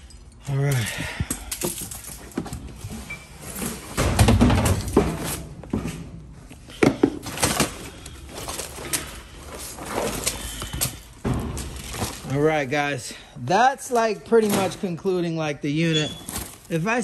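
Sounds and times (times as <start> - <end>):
items knocking and clicking: 3.6 - 12.3
bags and clothing rustling: 6.5 - 12.8, 15.8 - 17.0.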